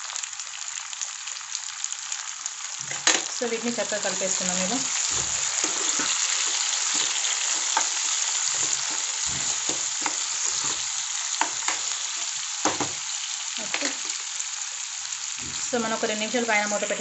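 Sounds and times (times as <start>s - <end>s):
vegetables sizzling in hot oil: 0.0s - 17.0s
steel spoon scraping a pan: 4.2s - 12.4s.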